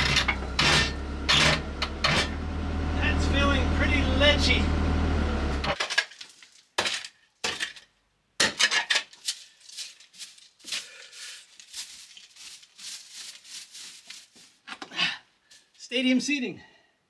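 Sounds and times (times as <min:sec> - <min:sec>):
shovel digging stony soil: 0:08.4 - 0:14.5.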